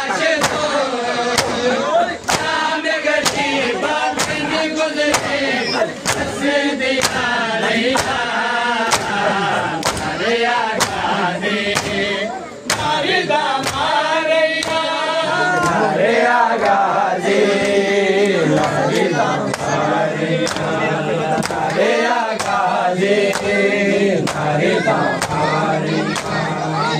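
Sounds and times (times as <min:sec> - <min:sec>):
men chanting a lament: 0:00.0 - 0:26.9
hands slapping chests: 0:00.3 - 0:07.3, 0:07.9 - 0:08.2, 0:08.8 - 0:10.2, 0:10.8 - 0:11.1, 0:11.7 - 0:12.0, 0:12.6 - 0:13.0, 0:13.6 - 0:13.9, 0:14.6 - 0:14.9, 0:20.4 - 0:23.6, 0:24.2 - 0:24.5, 0:25.1 - 0:26.4.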